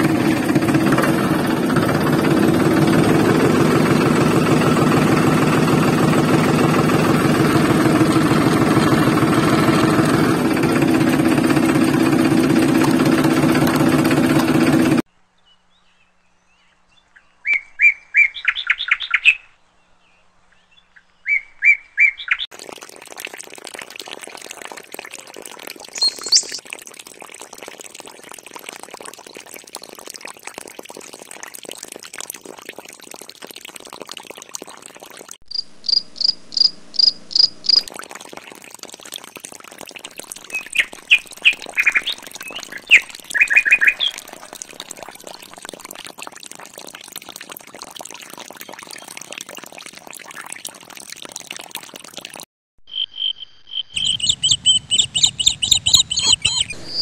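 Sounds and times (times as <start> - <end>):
bird chirps: 15.4 - 22.5, 26.0 - 26.6, 40.5 - 44.2, 52.8 - 57.0.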